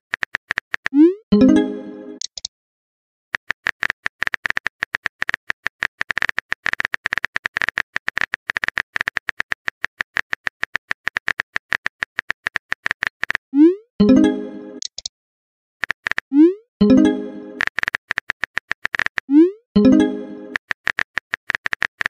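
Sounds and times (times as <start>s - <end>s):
phone keyboard typing clicks: 3.4s - 13.4s, 17.5s - 19.3s, 20.5s - 22.0s.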